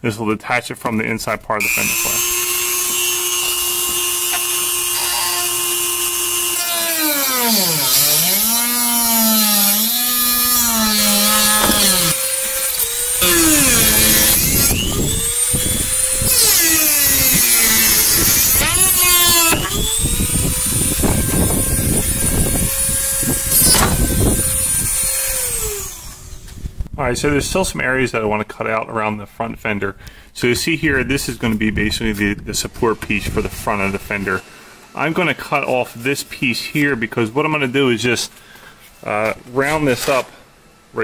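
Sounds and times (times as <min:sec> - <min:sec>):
jigsaw cutting plastic: 0:01.6 - 0:26.6.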